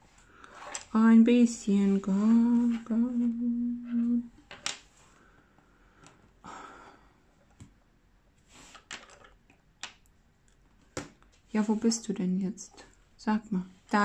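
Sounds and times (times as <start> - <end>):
pencils clicking and rustling: 0.4 - 1.0, 4.4 - 4.9, 8.6 - 10.6
person humming: 2.0 - 4.3.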